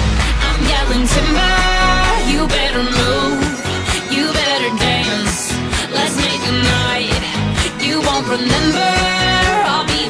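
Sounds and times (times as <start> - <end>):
live pop band with steady beat: 0.0 - 10.0.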